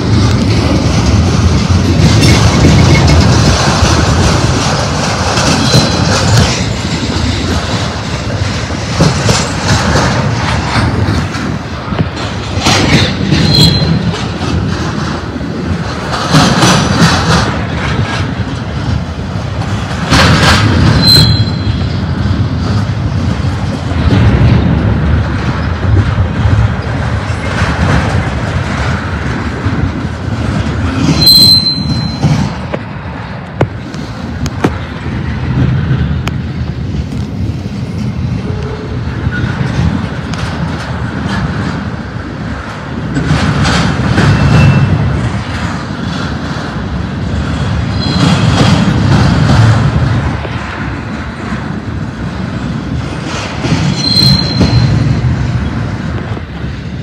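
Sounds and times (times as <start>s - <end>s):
freight train wheels rumbling: 0.0s - 57.0s
high wheel squeals: 13.4s - 14.0s, 21.0s - 22.0s, 31.2s - 32.4s, 48.0s - 48.6s, 53.9s - 55.2s.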